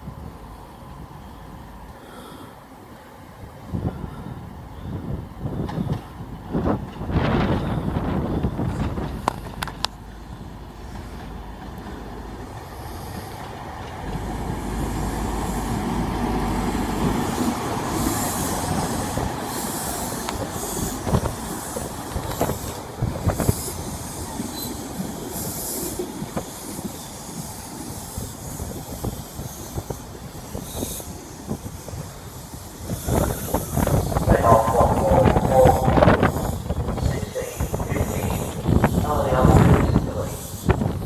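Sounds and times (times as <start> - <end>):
diesel locomotive engine passing: 0.0 - 41.0.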